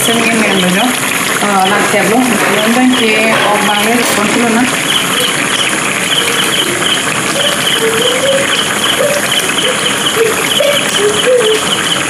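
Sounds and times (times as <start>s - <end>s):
curry bubbling and sizzling: 0.0s - 12.0s
insect chirping in pulses: 4.7s - 12.0s.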